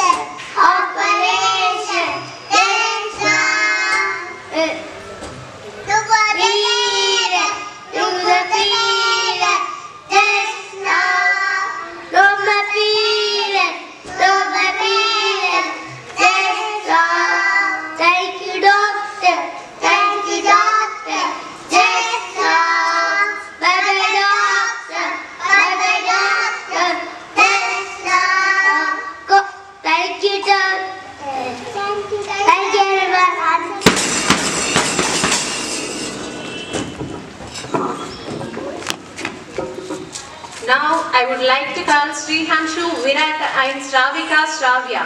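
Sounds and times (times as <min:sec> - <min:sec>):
children singing into microphones: 0:00.0 - 0:35.4.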